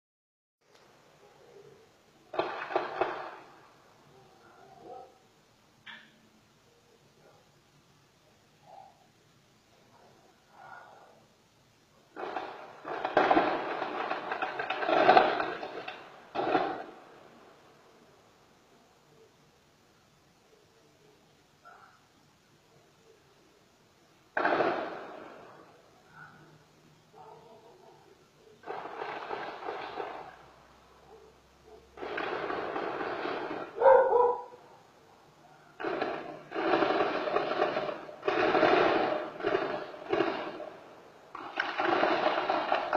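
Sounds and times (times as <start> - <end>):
rapid gunfire bursts: 2.3 - 3.8, 12.1 - 17.7, 24.3 - 25.8, 28.6 - 30.5, 31.9 - 34.0, 35.8 - 42.9
dog barking: 4.1 - 5.3, 7.2 - 7.5, 8.6 - 9.1, 9.9 - 11.2, 21.6 - 22.1, 26.0 - 28.8, 31.0 - 32.2, 33.6 - 34.7.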